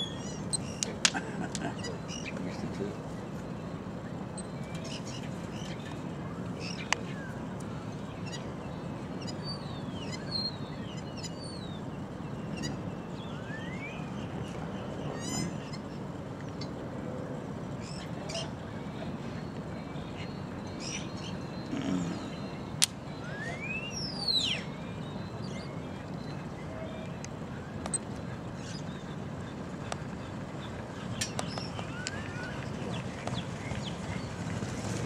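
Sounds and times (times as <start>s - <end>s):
outdoor background noise: 0.0s - 35.0s
small birds chirping: 0.0s - 35.0s.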